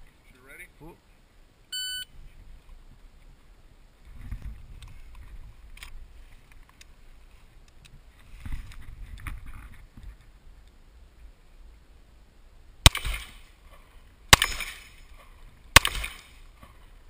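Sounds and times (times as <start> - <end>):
high start beep: 1.7 - 2.1
rustling: 2.2 - 11.7.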